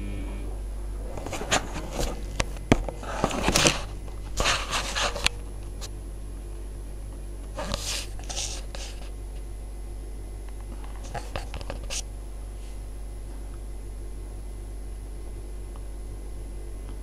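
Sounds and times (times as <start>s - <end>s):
washing machine humming: 0.0s - 17.0s.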